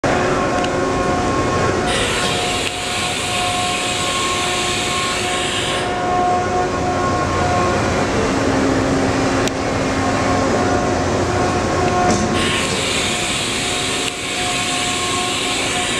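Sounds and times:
faint wavering whine: 0.1s - 15.9s
hiss: 1.9s - 6.0s, 12.4s - 15.9s.

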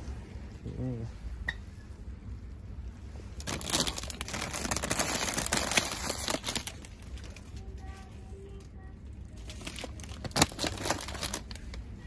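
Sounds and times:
crinkling and rustling: 3.4s - 12.0s.

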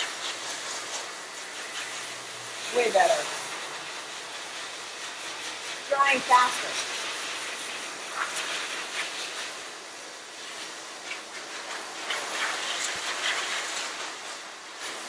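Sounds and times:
pet dryer blowing air: 0.0s - 15.0s.

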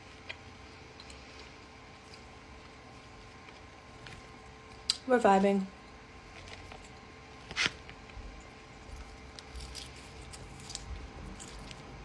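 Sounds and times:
crunchy chewing: 6.2s - 12.0s.

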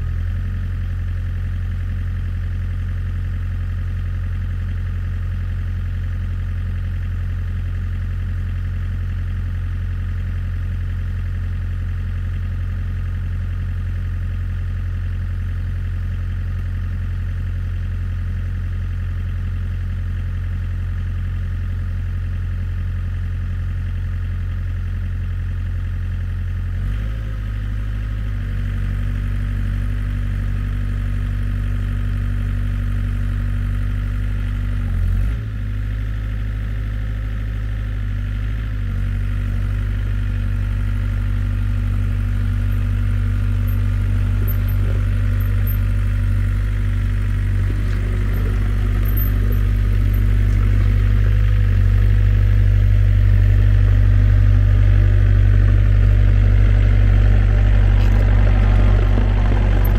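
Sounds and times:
excavator diesel engine idling: 0.0s - 59.9s.

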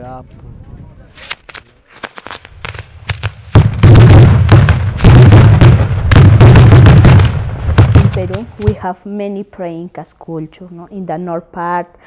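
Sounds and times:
fireworks cracking: 1.2s - 9.0s
fireworks barrage of rapid bangs: 1.9s - 8.9s.

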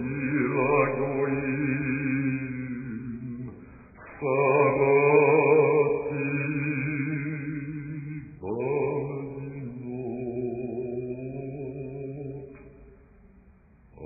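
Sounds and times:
chant in long held notes: 0.0s - 12.8s
singer's short breath: 3.5s - 4.0s.

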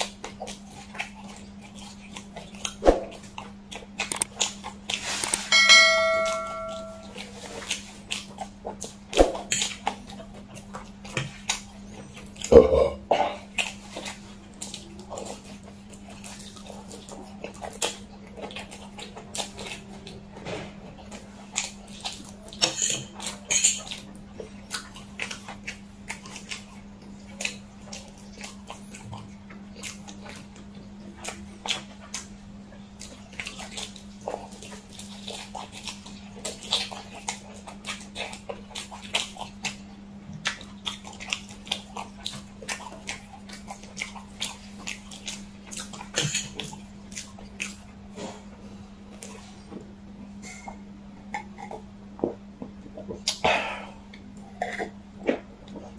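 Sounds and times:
wet chewing smacks: 0.0s - 5.4s, 7.0s - 20.2s, 20.8s - 49.7s, 53.1s - 55.9s
steady low hum: 0.8s - 22.6s.

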